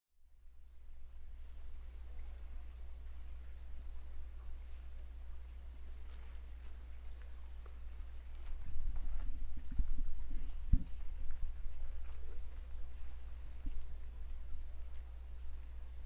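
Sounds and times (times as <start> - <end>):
low steady rumble: 0.2 - 16.0
high-pitched insect drone: 1.1 - 16.0
low knocks: 8.6 - 14.0.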